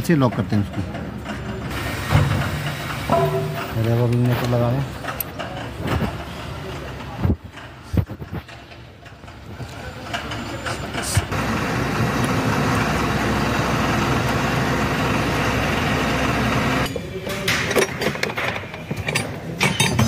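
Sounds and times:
metallic clinks of tools: 17.7 - 20.0.

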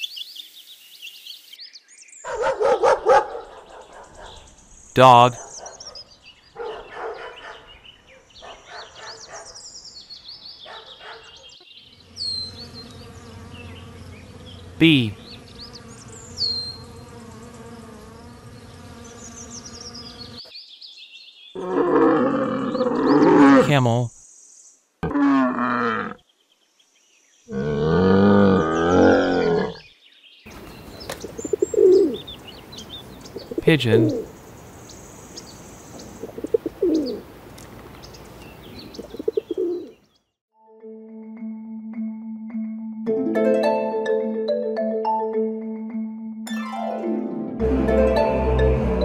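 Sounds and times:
small birds chirping: 0.0 - 21.7, 28.6 - 40.4
dog barking: 2.3 - 4.4, 5.4 - 9.6, 10.6 - 11.6
background hiss: 30.5 - 39.9
pigeon cooing: 30.6 - 34.3, 36.0 - 37.3, 38.8 - 40.0.

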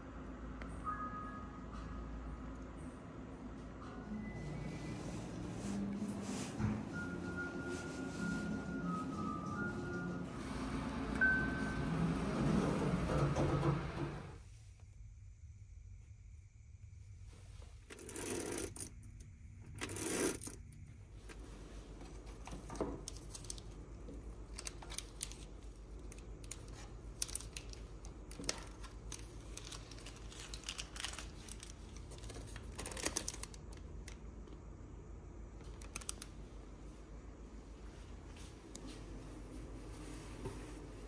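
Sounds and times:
packets clattering on plastic trays: 24.5 - 34.2.

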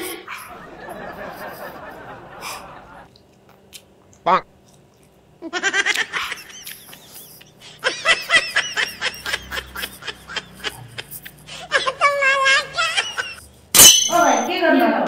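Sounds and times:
high-pitched laugh: 0.0 - 3.1, 5.4 - 13.5
people laughing: 0.0 - 3.1, 5.4 - 13.5.

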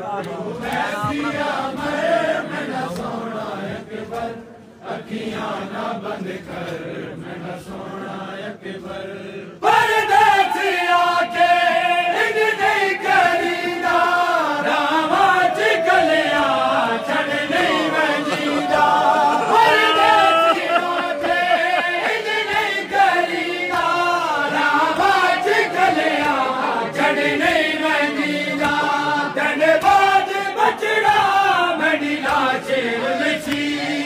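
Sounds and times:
men chanting a lament: 0.0 - 34.0
lead reciter on microphone: 14.5 - 29.7.

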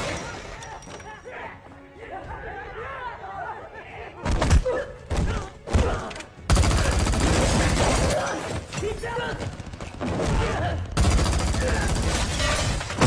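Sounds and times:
rapid sustained gunfire: 6.5 - 8.2, 9.4 - 12.6
loud gunshots: 6.5 - 13.0.

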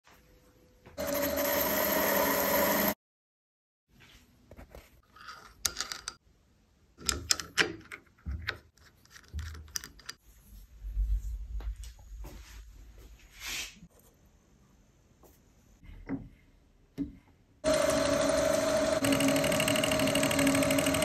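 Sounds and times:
lathe running and cutting: 17.6 - 21.0.

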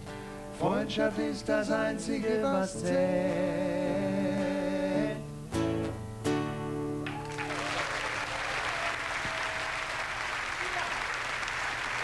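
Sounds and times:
acoustic guitar: 0.0 - 7.6
bass: 0.0 - 7.8
man singing with vibrato: 0.5 - 5.5
audience applause: 7.0 - 12.0.

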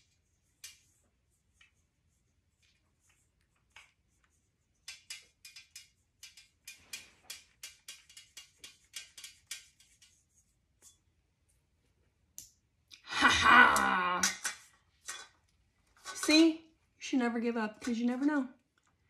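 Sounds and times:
metal pieces clicking and clinking: 14.2 - 15.4.

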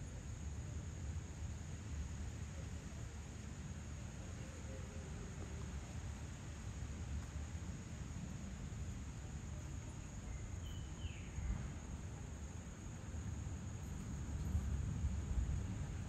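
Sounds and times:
insects trilling: 8.8 - 16.0.

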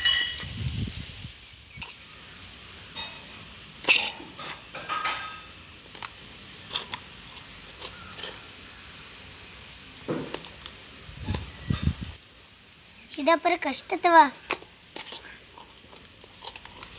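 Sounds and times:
hands kneading dough in metal bowl: 3.8 - 8.5, 13.6 - 16.9.

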